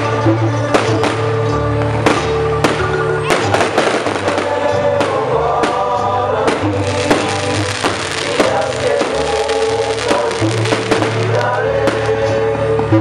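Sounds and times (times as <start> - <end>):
fireworks bangs and crackles: 0.0 - 12.4
loud music with heavy bass: 2.6 - 12.2.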